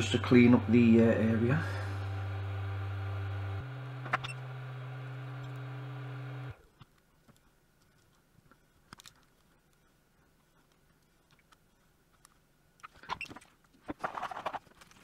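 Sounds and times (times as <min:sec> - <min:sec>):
electric fan motor humming: 0:00.0 - 0:06.6
faint clicks and scrapes: 0:06.6 - 0:15.0.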